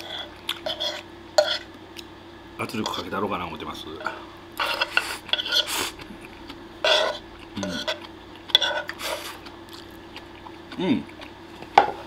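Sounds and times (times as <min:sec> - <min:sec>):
mouth eating sounds: 0:07.2 - 0:11.5.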